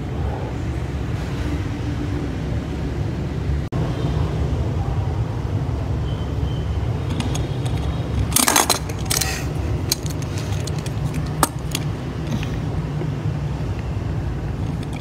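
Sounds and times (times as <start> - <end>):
plastic toy clicks and rattles: 7.0 - 12.0, 14.6 - 15.0.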